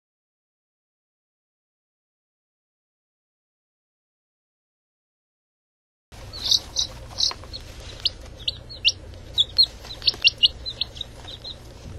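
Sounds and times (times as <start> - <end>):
timer chick chirping signal: 6.3 - 7.4, 8.4 - 11.6.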